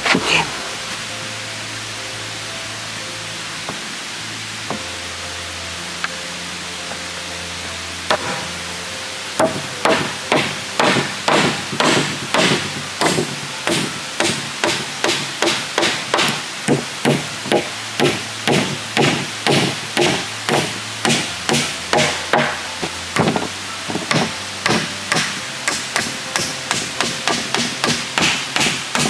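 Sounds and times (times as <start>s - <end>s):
hammer striking nails into wood: 8.1s - 8.4s, 9.4s - 29.0s.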